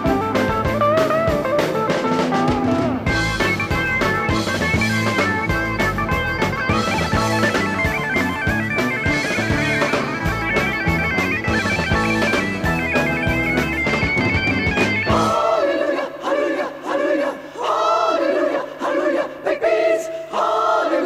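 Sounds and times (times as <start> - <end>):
reedy synthesizer lead: 0.0 - 15.4
rock band playing: 0.0 - 15.5.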